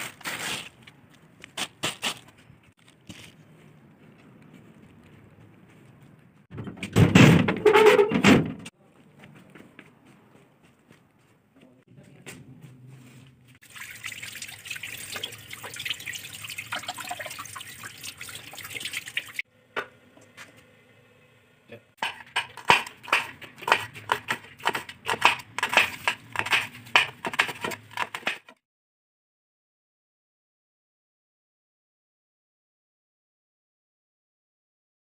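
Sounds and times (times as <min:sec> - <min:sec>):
water running from a tap: 0:13.6 - 0:19.4.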